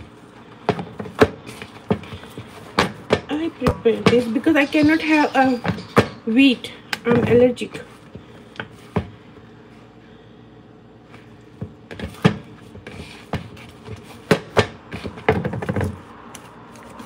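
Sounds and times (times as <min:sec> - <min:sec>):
hands kneading dough in bowl: 0:00.0 - 0:06.2, 0:11.0 - 0:17.0.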